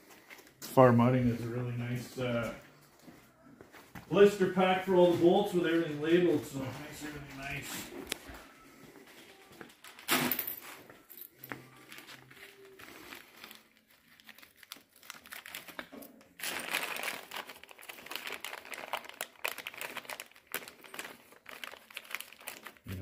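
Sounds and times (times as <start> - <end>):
plastic bags crinkling: 6.0 - 23.0.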